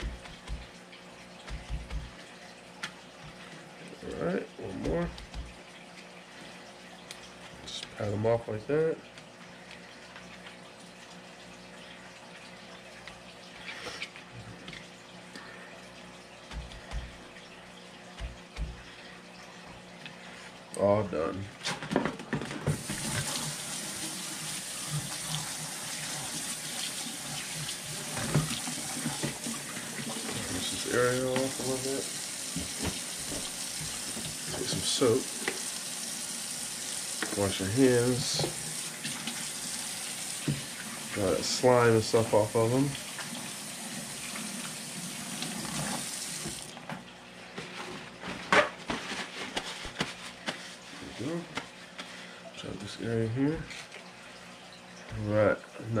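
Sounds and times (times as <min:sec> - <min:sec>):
faucet water splashing in sink: 0:00.0 - 0:03.5, 0:04.1 - 0:06.0, 0:16.4 - 0:19.0, 0:22.6 - 0:46.8
paper towel crinkling: 0:47.6 - 0:52.0.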